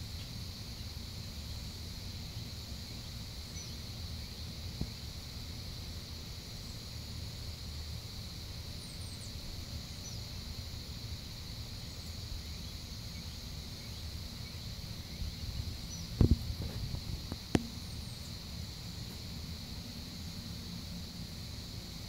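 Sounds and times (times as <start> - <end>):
high insect drone: 0.0 - 22.0
sharp knocks: 17.6 - 17.8.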